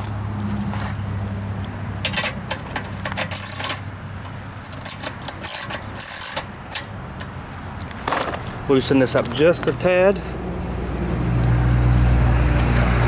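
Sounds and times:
wrench clinking and scraping on metal: 0:02.0 - 0:09.9.

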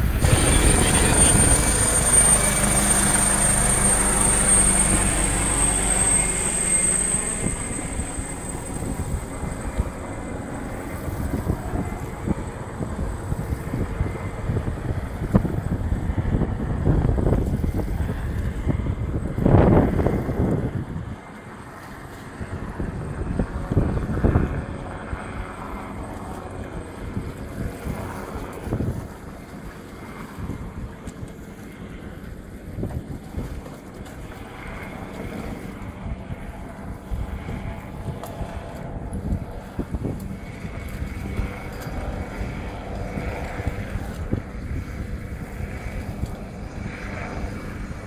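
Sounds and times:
boat engines idling: 0:00.0 - 0:15.3
boat engine running: 0:00.0 - 0:48.0
wind buffeting microphone: 0:00.0 - 0:48.0.

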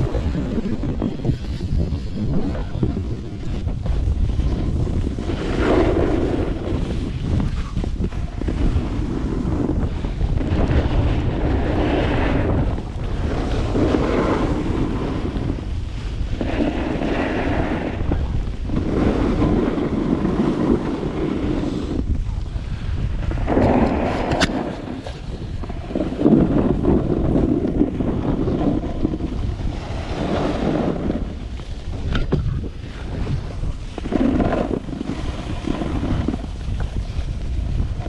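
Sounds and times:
ski edges scraping snow: 0:00.0 - 0:38.0
wind rushing over microphone: 0:00.0 - 0:38.0.

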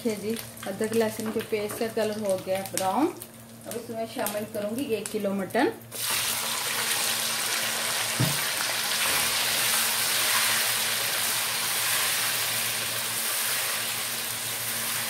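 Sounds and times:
meat sizzling in hot oil: 0:05.9 - 0:15.0.

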